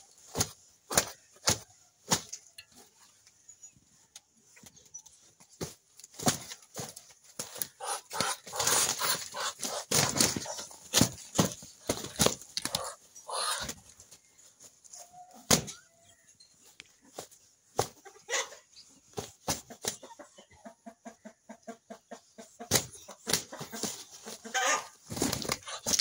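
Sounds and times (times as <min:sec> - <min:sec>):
wings beating and scuffling: 0:00.0 - 0:15.9, 0:16.9 - 0:18.1, 0:22.6 - 0:26.0.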